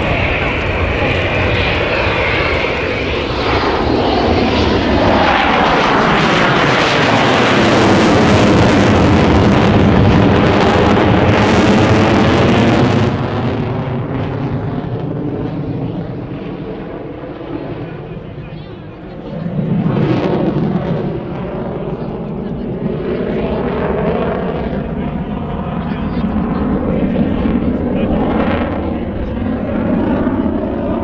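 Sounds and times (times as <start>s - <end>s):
jet engine flypast: 0.0s - 31.0s.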